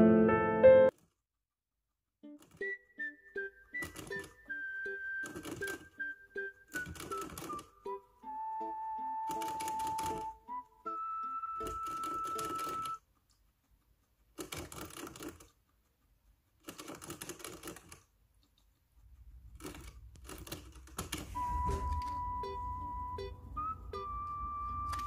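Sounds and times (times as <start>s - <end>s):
background music: 0.0s - 0.9s, 2.3s - 13.0s, 21.4s - 25.0s.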